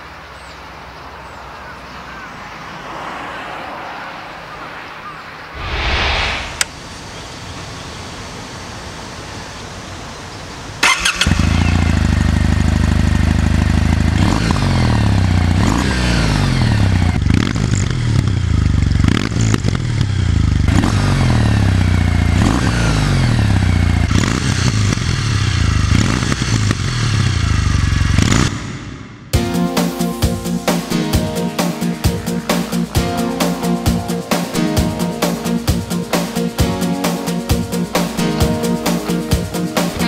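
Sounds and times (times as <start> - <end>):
motorcycle engine idling and revving: 10.7 - 29.4
motorcycle starter click: 10.8 - 11.4.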